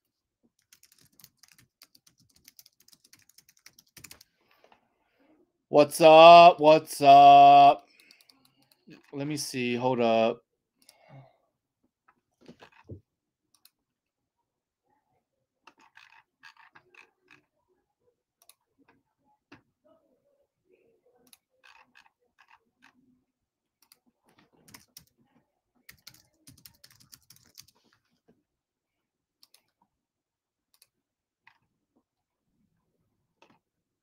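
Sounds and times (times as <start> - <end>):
typing on computer keyboard: 0.6 - 4.3, 24.6 - 25.2, 25.9 - 27.8.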